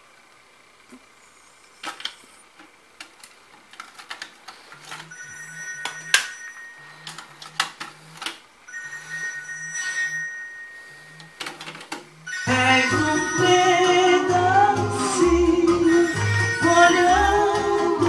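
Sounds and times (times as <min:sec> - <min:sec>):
telephone ringing: 0:04.7 - 0:18.0.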